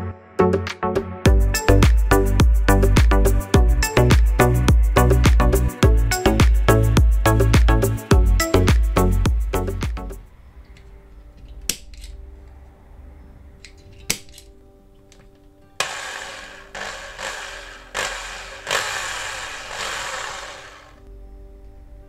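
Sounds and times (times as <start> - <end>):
electric drill grinding: 15.8 - 21.0.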